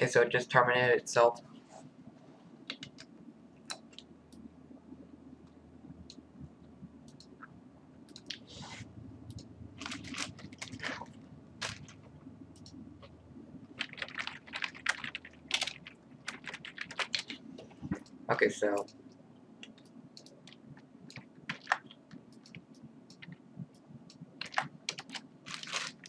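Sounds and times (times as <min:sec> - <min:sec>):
low steady hum: 0:00.0 - 0:26.0
keyboard and mouse clicking: 0:02.7 - 0:04.1, 0:08.1 - 0:08.4, 0:12.6 - 0:12.8, 0:19.6 - 0:25.3.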